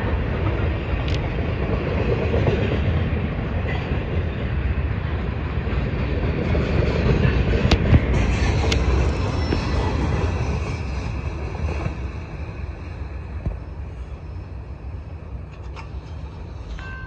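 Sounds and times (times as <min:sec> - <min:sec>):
freight train rolling on rails: 0:00.0 - 0:17.0.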